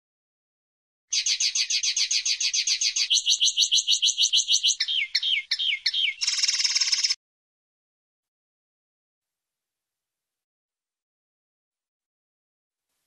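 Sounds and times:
bird singing trills: 1.1s - 7.2s.

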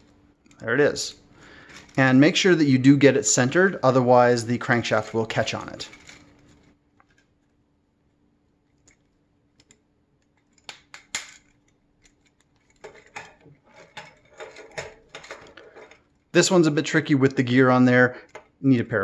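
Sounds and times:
plastic parts clicking and clattering: 1.6s - 2.1s, 4.9s - 7.5s, 8.7s - 16.3s.

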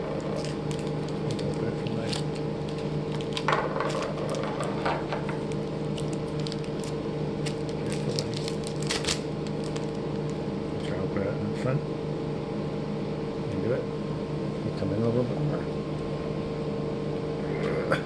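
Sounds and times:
steady low hum: 0.0s - 18.0s
plastic wrapper crinkling: 0.4s - 4.8s, 5.4s - 10.4s.

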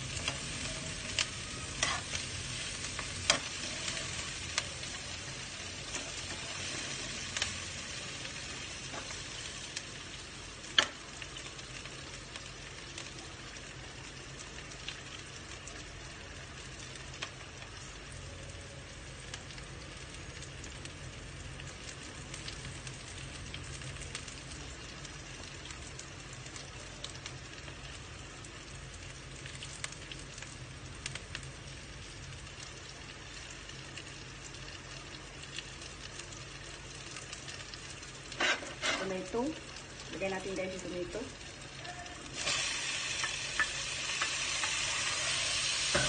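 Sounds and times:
onion and garlic sizzling in oil: 0.0s - 46.0s.

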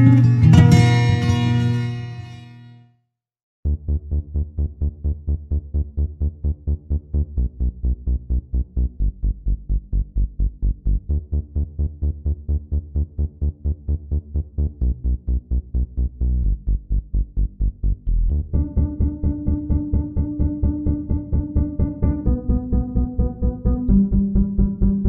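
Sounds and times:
electronic dance music: 18.3s - 25.0s.

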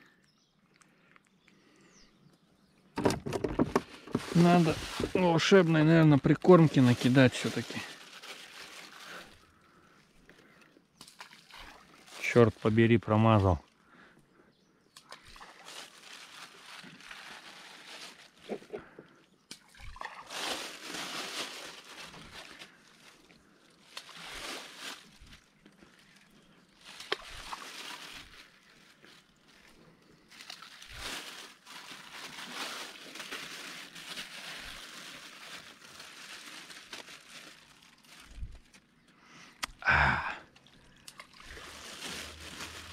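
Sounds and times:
plastic bag rustling: 3.0s - 10.0s, 11.7s - 13.5s, 15.2s - 18.8s, 20.2s - 39.0s, 41.2s - 42.9s
water sloshing: 11.0s - 12.6s.

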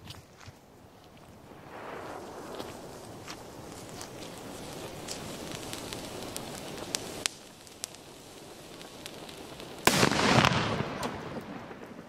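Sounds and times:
fuse hissing and crackling: 0.4s - 12.0s
firecracker bang: 8.7s - 12.0s.

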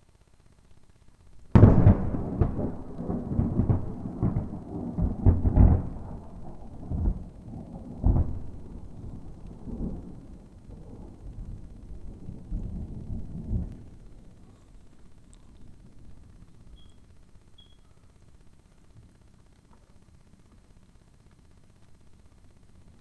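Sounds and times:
thunder crack and rumble: 1.5s - 14.5s.

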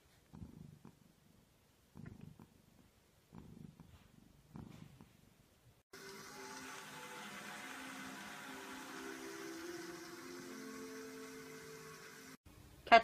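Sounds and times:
cat purring: 0.0s - 5.8s.

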